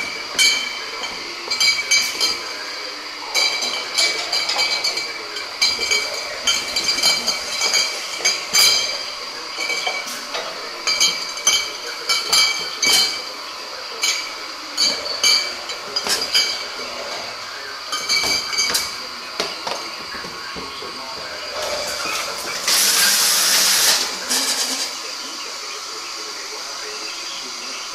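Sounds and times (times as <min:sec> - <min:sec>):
glass bottles clinking: 0:00.0 - 0:25.2.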